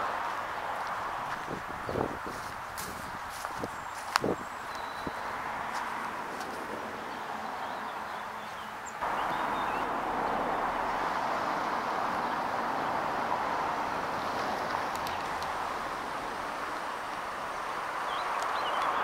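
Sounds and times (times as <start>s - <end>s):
road traffic roar: 0.0s - 19.0s
faint bird chirps: 3.8s - 5.3s.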